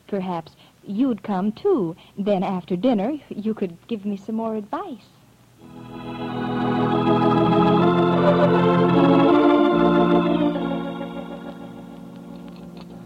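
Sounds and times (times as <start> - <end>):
organ chords: 5.6 - 13.0.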